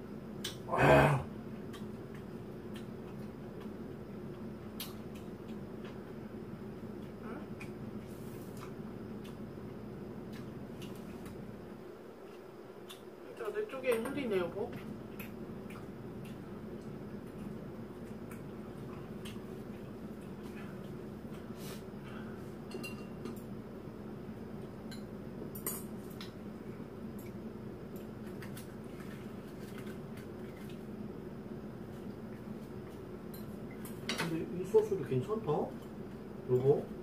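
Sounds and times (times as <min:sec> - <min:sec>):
steady low hum: 0:00.0 - 0:37.0
chopsticks clinking against bowls: 0:22.7 - 0:23.5.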